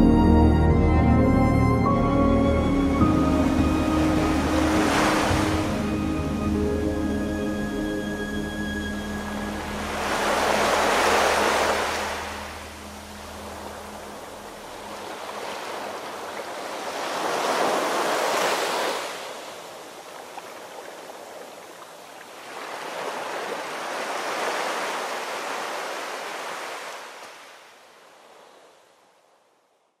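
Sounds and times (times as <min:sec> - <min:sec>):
rushing surf-like noise: 0:03.1 - 0:06.4, 0:08.2 - 0:19.5.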